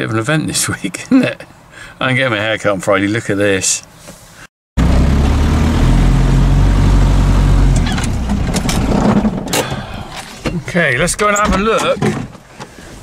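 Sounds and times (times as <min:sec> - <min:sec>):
road and cab noise: 0:00.0 - 0:13.0
vehicle engine running: 0:04.8 - 0:09.3.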